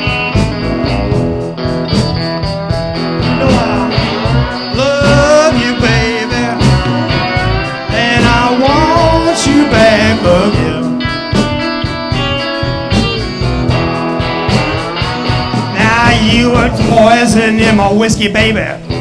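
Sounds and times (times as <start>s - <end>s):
electric guitar lines: 0.0s - 19.0s
live blues band: 0.0s - 19.0s
person singing: 3.2s - 11.1s, 15.7s - 18.5s.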